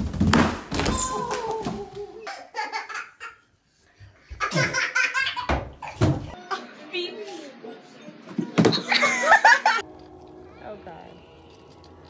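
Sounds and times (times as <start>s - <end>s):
children laughing: 1.8s - 3.5s, 4.4s - 6.7s, 8.7s - 9.9s.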